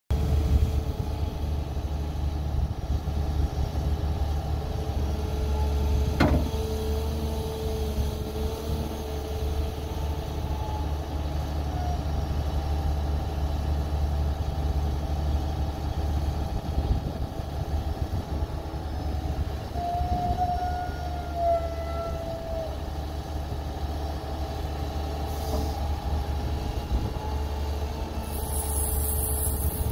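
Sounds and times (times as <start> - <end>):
excavator engine running: 0.1 - 20.5
hydraulic whine: 4.8 - 11.0, 25.3 - 29.9
metal clank: 6.2 - 6.6.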